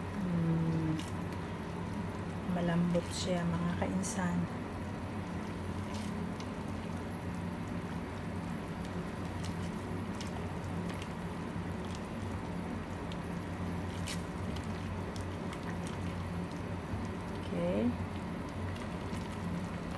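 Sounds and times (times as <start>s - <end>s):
soup simmering: 4.6s - 19.9s.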